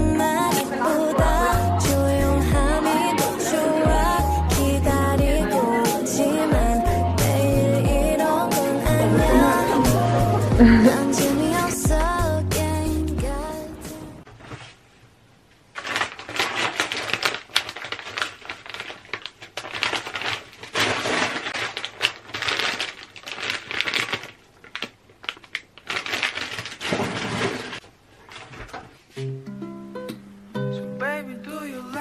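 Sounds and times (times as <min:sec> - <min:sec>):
plastic bag crinkling: 0:15.6 - 0:29.0.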